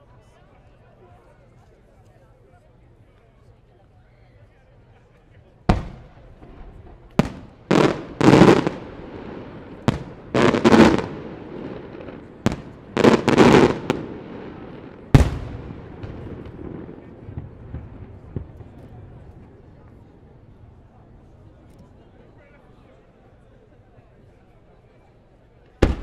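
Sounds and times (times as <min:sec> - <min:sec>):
fireworks exploding: 0:05.7 - 0:21.5, 0:25.7 - 0:26.0.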